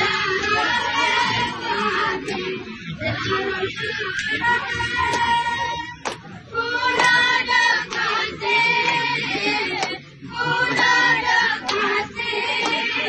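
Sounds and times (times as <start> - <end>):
women singing together: 0.0 - 13.0
hand claps: 5.0 - 5.4, 6.0 - 6.3, 6.9 - 8.2, 8.8 - 10.0, 10.7 - 11.9, 12.5 - 13.0.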